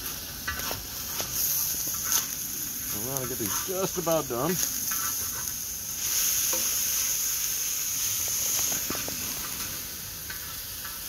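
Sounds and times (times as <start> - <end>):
metal spatula scraping: 0.0 - 7.1
fish sizzling in hot oil: 0.0 - 11.0.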